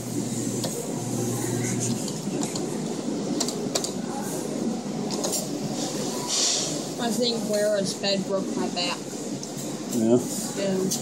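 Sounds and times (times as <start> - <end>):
din of arcade machines: 0.0 - 7.8
faint voices: 0.0 - 11.0.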